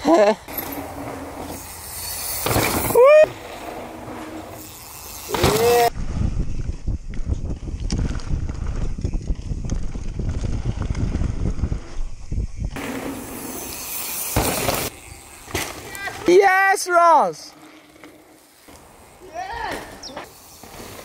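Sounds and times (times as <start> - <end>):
bike tyres and frame rattling: 0.4 - 21.0
bike tyres sliding through dirt: 0.4 - 21.0
wind buffeting microphone: 5.8 - 12.8.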